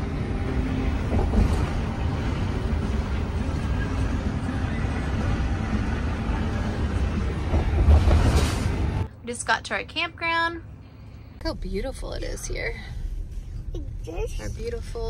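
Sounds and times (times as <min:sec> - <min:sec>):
engine and tyre rumble: 0:00.0 - 0:09.2.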